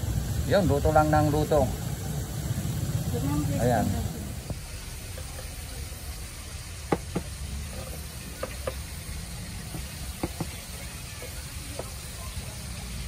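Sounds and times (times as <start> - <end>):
steady low rumble: 0.0 - 5.0.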